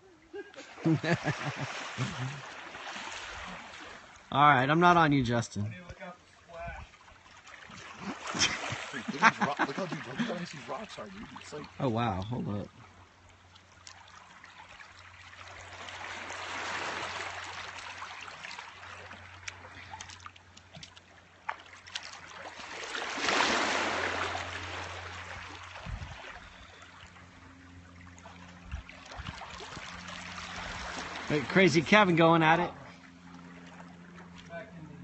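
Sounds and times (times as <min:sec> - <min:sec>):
small splashes: 0:00.6 - 0:04.3, 0:06.7 - 0:34.8
water trickling over rocks: 0:10.2 - 0:22.7.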